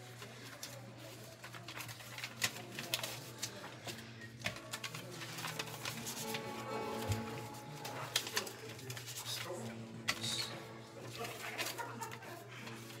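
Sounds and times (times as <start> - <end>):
held musical tones: 5.4 - 13.0.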